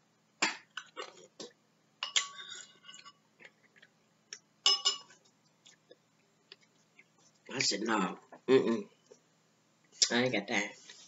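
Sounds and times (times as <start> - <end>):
metal spoon clinking on ceramic bowl: 4.7 - 5.2
lip-smacking and chewing: 5.2 - 7.5.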